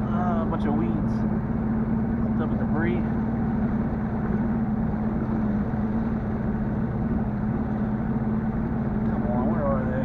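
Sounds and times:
outboard motor running: 0:00.0 - 0:10.0.

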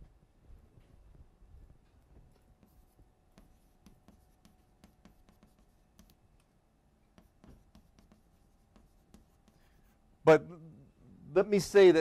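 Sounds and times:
pen scratching while writing: 0:02.3 - 0:06.2, 0:07.2 - 0:09.9.

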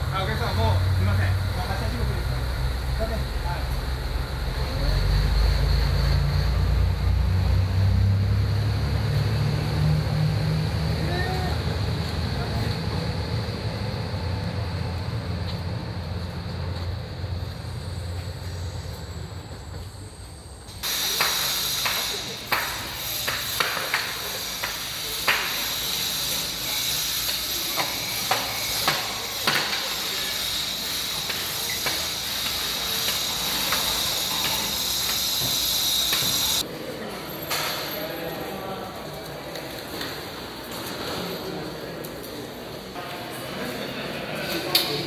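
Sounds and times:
diesel railcar engine running: 0:00.0 - 0:36.7
steady high hiss: 0:20.2 - 0:36.6.

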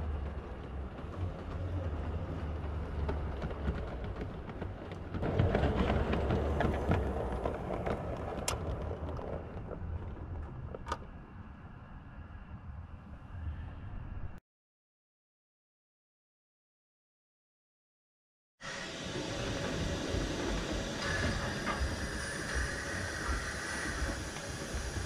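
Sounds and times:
model train wheels rumbling: 0:00.0 - 0:11.3, 0:18.6 - 0:25.0.

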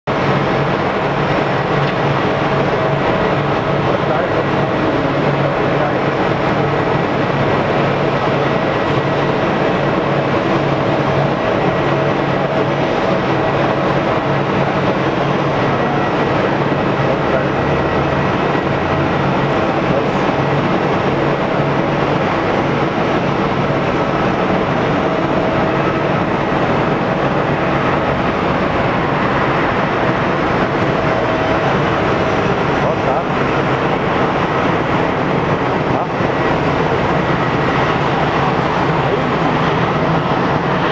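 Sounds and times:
faint steady whine: 0:00.1 - 0:40.9
jet aircraft rumble: 0:00.1 - 0:40.9.

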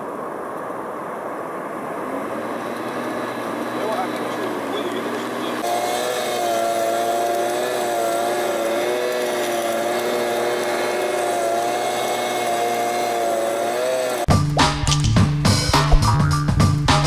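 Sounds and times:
petrol leaf vacuum engine: 0:01.8 - 0:14.3.

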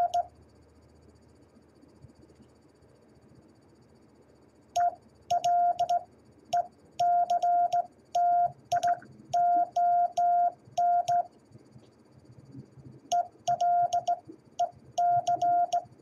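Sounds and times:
morse code beeps: 0:00.0 - 0:00.2, 0:04.8 - 0:06.0, 0:06.6 - 0:11.3, 0:13.1 - 0:15.9
telegraph key clicks: 0:13.1 - 0:14.2, 0:15.0 - 0:15.9.

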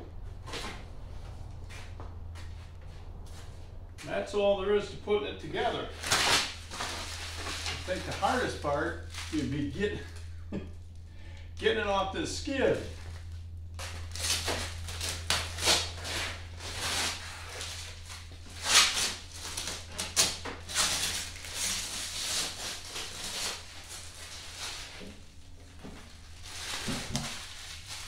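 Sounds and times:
steady low hum: 0:00.0 - 0:28.0
plastic packaging crinkling: 0:05.9 - 0:09.7, 0:13.0 - 0:28.0.

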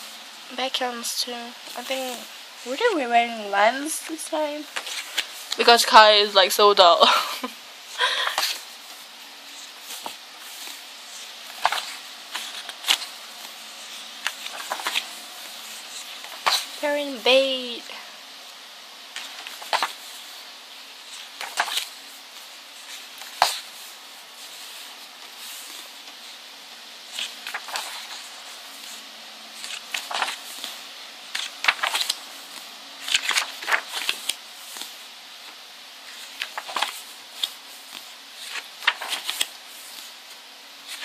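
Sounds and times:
book pages turning: 0:04.7 - 0:05.7, 0:08.3 - 0:16.8, 0:19.1 - 0:20.4, 0:21.1 - 0:26.4, 0:27.1 - 0:29.0, 0:29.6 - 0:41.0.

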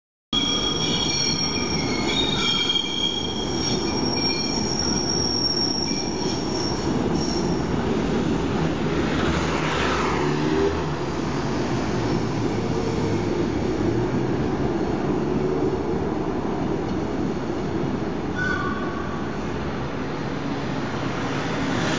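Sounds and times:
train wheels squealing: 0:00.4 - 0:07.7, 0:18.4 - 0:19.4.

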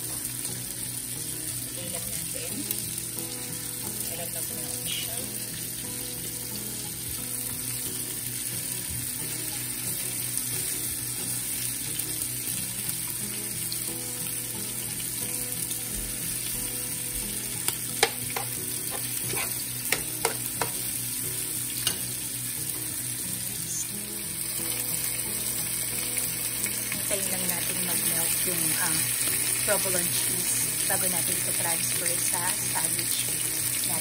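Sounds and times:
food sizzling in a frying pan: 0:00.0 - 0:34.0
metal tongs clicking on pan: 0:17.7 - 0:20.8, 0:21.8 - 0:22.2.

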